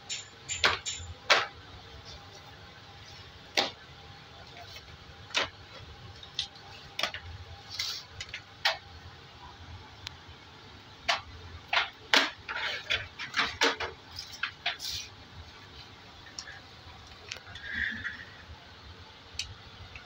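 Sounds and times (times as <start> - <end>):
plastic panels clacking: 11.1 - 15.0.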